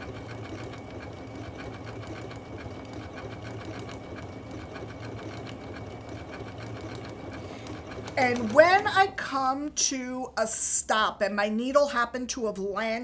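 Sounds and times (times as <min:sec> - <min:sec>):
sewing machine stitching: 0:00.0 - 0:09.5.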